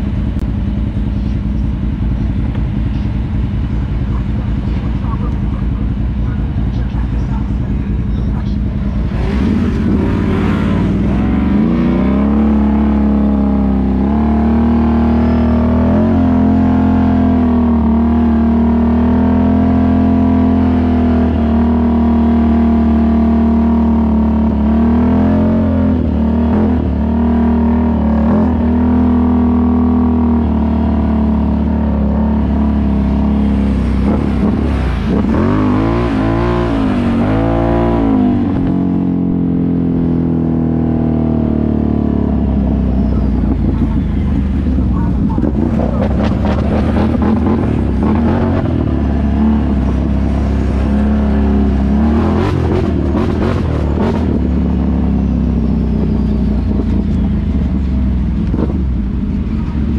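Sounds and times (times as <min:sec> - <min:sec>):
atv engine revving: 0:00.0 - 0:59.9
atv engine running: 0:00.0 - 0:59.9.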